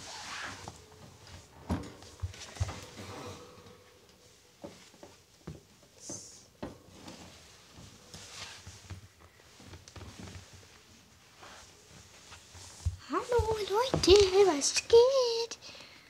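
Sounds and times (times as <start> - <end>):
footsteps on wooden floor: 12.7 - 14.6.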